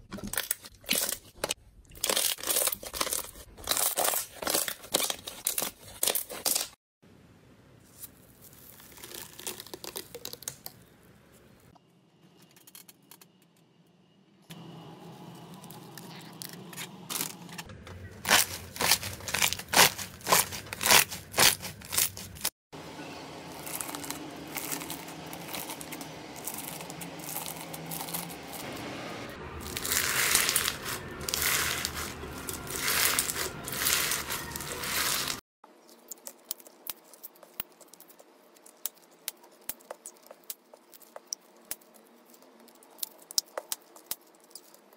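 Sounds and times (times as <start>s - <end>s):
slime crackling and popping: 8.0s - 10.9s, 18.3s - 22.5s, 23.5s - 28.6s, 29.6s - 44.9s.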